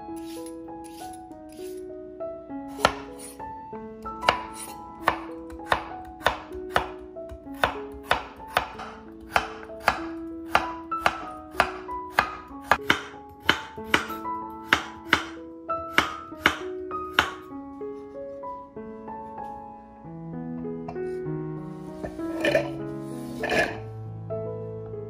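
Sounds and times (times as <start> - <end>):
light background music: 0.0 - 25.0
knife chopping on wooden board: 2.8 - 3.1, 4.2 - 17.5.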